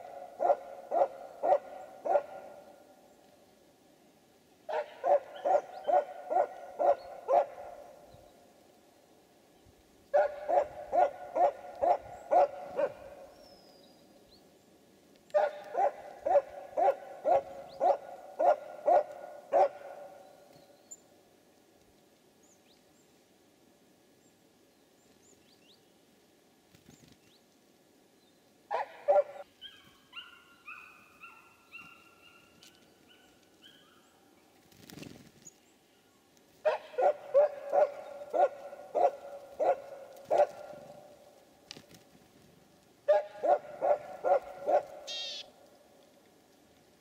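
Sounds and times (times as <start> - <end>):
animal barking calls: 0.0 - 2.9, 4.7 - 8.1, 10.1 - 13.4, 15.3 - 20.4, 28.7 - 32.5, 36.6 - 41.2, 43.0 - 45.5.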